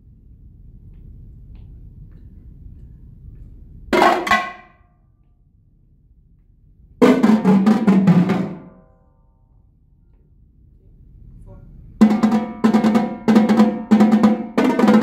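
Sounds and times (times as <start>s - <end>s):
marching tenor drums: 7.0s - 8.7s, 12.0s - 15.0s.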